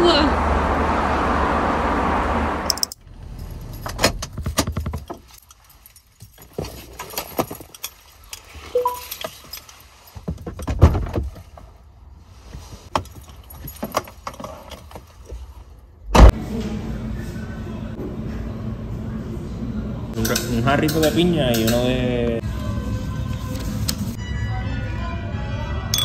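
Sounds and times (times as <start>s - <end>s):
keys jangling: 2.7s - 10.6s, 12.9s - 15.1s
bag strap and clothing rustling: 3.3s - 10.6s
brief beep: 8.8s - 9.1s.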